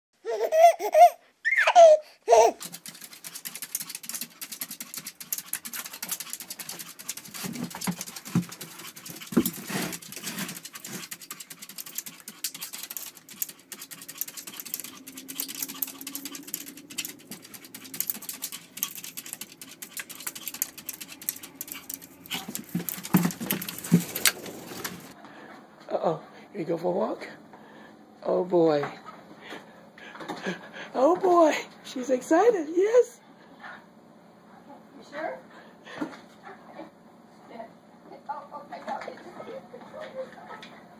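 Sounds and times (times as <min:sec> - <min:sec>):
dog claws scrabbling on glass: 0:02.6 - 0:25.1.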